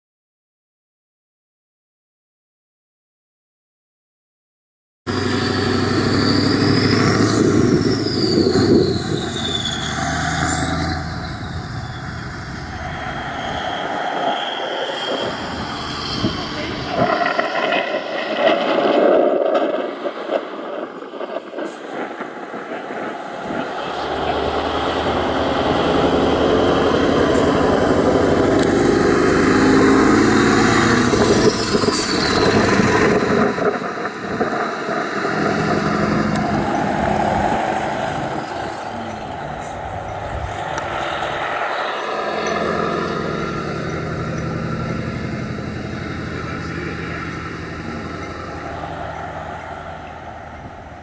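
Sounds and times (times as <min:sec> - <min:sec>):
truck engine driving past: 0:05.1 - 0:18.1, 0:23.2 - 0:34.2, 0:35.0 - 0:51.0.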